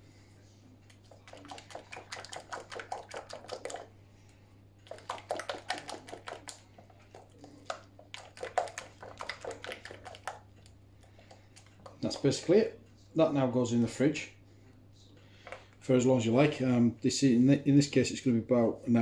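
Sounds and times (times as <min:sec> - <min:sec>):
whisk clicking against bowl: 0:01.0 - 0:03.9, 0:04.8 - 0:12.4.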